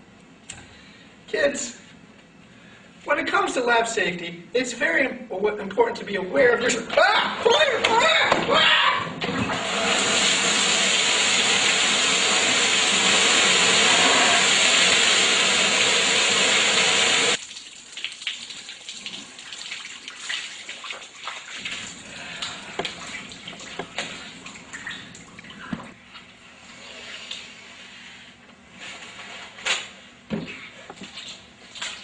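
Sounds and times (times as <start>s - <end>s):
safety shower pouring water: 9.6s - 22.0s.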